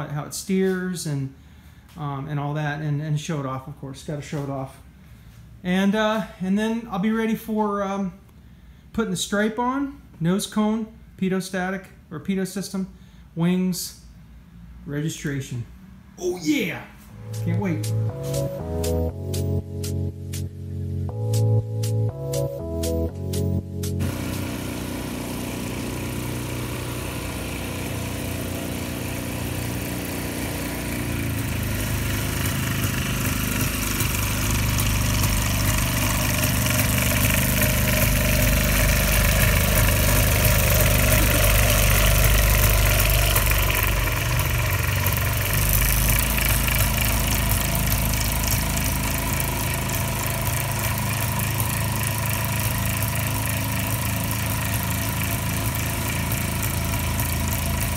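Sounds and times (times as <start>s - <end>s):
propeller plane engine droning: 24.0s - 57.9s.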